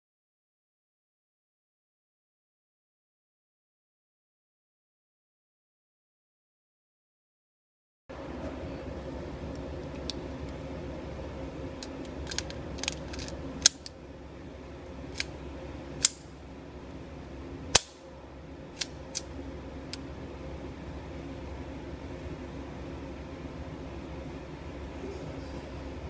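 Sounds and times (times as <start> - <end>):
background hum: 8.1 - 26.0.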